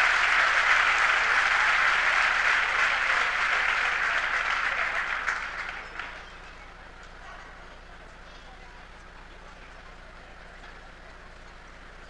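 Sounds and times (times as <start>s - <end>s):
crowd applauding: 0.0s - 6.8s.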